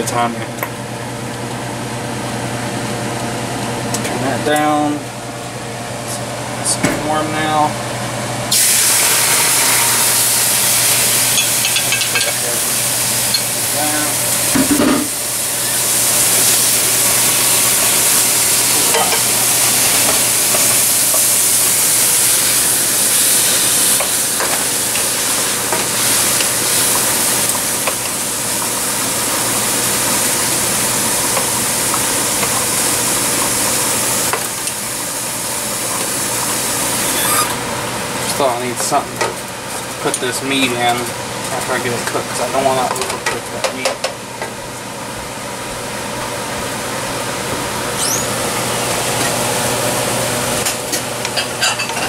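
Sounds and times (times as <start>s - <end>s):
meat sizzling in a hot pan: 8.5s - 37.6s.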